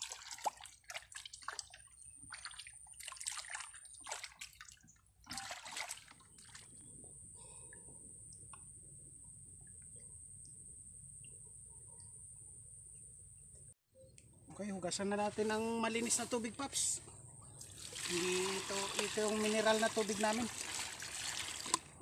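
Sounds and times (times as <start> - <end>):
shallow water sloshing and splashing: 0.0 - 7.1, 17.6 - 22.0.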